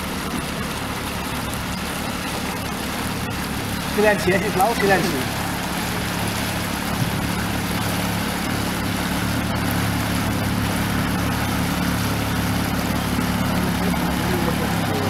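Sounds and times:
outboard motor running: 0.0s - 15.0s
water hissing: 0.0s - 15.0s.

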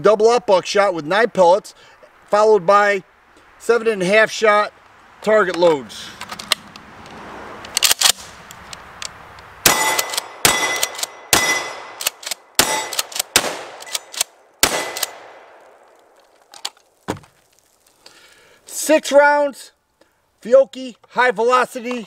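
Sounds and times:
gun action clicks: 6.2s - 6.8s, 7.6s - 11.2s, 11.9s - 15.8s
shotgun shots ringing: 9.6s - 15.8s.

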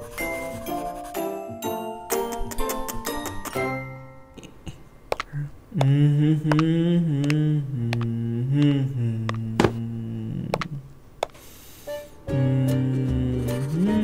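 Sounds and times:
low voice humming: 4.4s - 11.0s.

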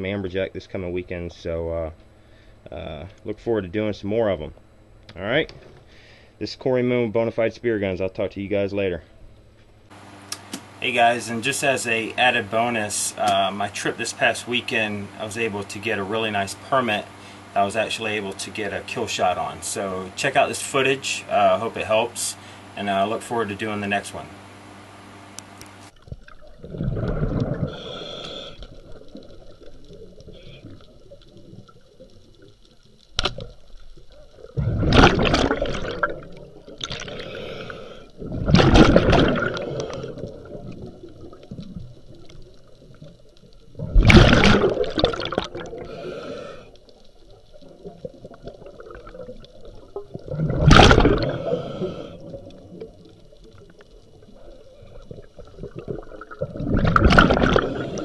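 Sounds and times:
low hum: 0.0s - 20.0s, 22.4s - 58.0s
sharp click: 10.3s - 10.7s
breathing bubbles underwater: 26.2s - 31.9s, 34.4s - 42.0s, 43.7s - 58.0s.

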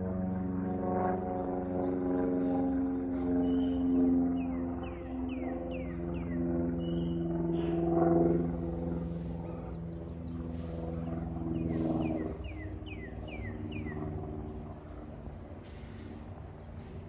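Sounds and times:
propeller airplane engine drone: 0.0s - 17.0s
bird chirping: 11.5s - 14.6s.

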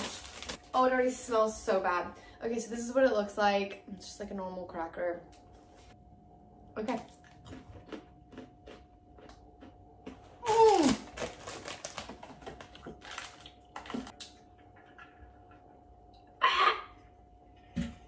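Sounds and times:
snack packet crinkling: 0.0s - 0.8s, 10.1s - 14.4s.

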